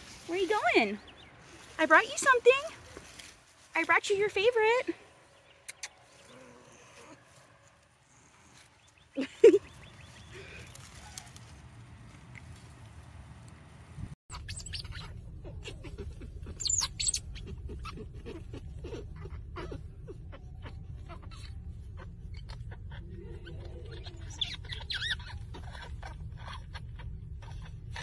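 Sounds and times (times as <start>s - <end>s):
otter pups squeaking and chirping: 14.3s - 28.0s.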